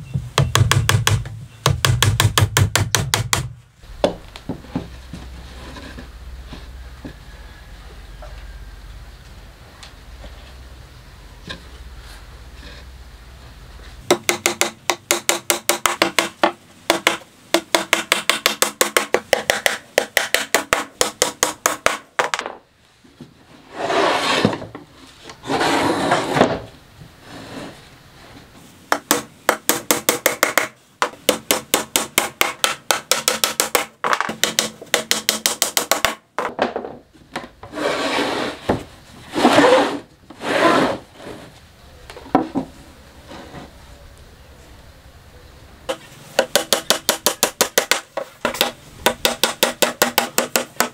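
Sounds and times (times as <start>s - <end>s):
hammer knocking on plywood box: 0.2s - 4.9s, 14.1s - 22.5s, 28.9s - 36.2s, 46.4s - 50.9s
plywood scraping on plywood: 4.5s - 6.7s, 23.5s - 28.6s, 36.8s - 41.6s, 43.3s - 43.7s.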